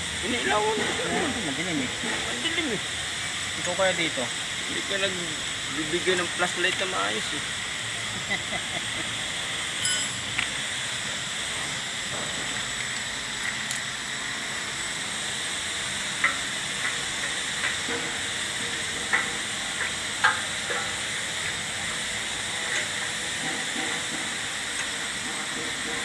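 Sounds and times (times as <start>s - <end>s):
steady background hiss: 0.0s - 11.2s.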